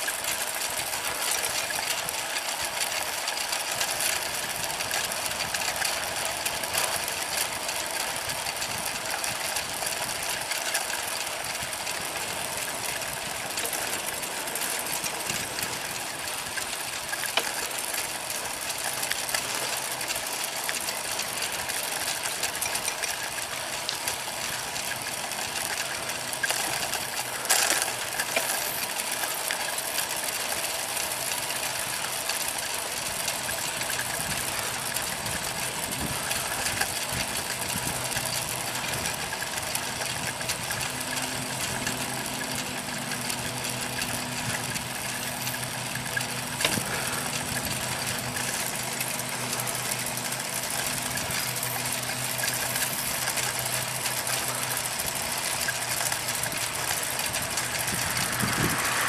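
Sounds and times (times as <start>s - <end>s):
bicycle clatter: 0.0s - 59.0s
bicycle ticking and rattling: 0.0s - 59.0s.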